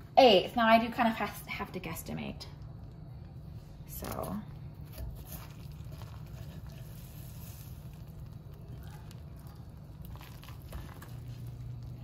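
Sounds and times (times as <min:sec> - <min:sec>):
steady low hum: 0:00.0 - 0:12.0
spoon scraping and wet squishing: 0:03.2 - 0:12.0.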